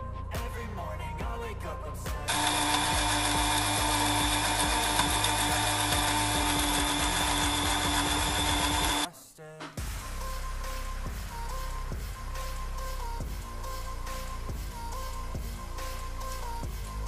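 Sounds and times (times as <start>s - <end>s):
blender motor whining: 2.3s - 9.1s.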